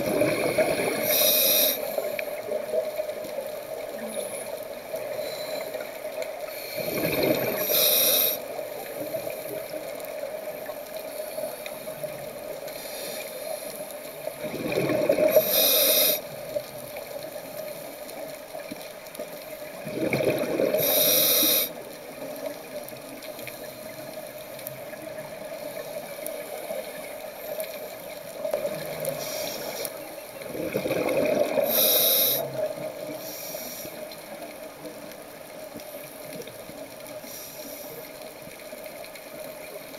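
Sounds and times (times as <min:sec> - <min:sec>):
bubbling with sharp hiss: 0:00.0 - 0:34.4
faint steady hum: 0:00.0 - 0:39.9
diver breathing through regulator: 0:00.1 - 0:02.2, 0:06.5 - 0:08.5, 0:15.2 - 0:16.4, 0:20.5 - 0:21.8, 0:29.1 - 0:30.0, 0:31.1 - 0:34.2.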